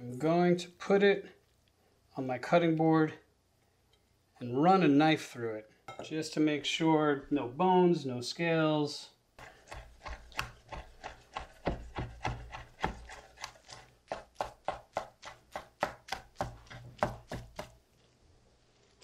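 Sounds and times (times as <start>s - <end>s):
knife chopping on wooden board: 9.4s - 17.8s.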